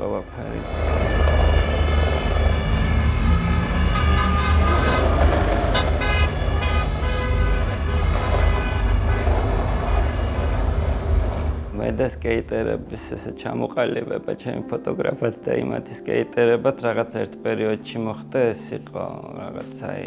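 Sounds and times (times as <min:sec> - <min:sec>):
car horns: 0:00.0 - 0:12.0
low rumble of vehicles: 0:00.0 - 0:13.3.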